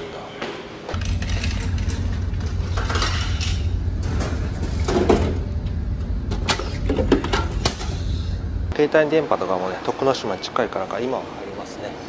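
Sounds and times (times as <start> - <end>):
ferry engines rumbling: 1.0 - 8.8.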